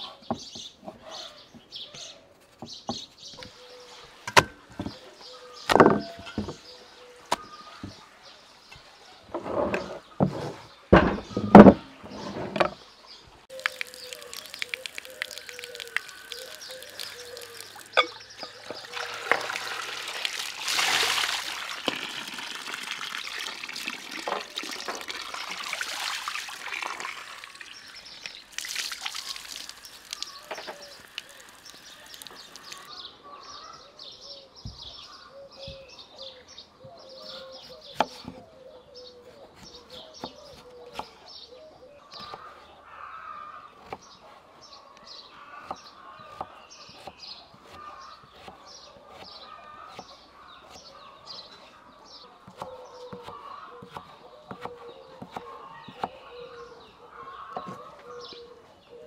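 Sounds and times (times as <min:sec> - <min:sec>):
birds chirping: 0:00.0 - 0:59.0
water pouring over potatoes: 0:13.5 - 0:32.9
knife cutting on wooden board: 0:52.4 - 0:56.2.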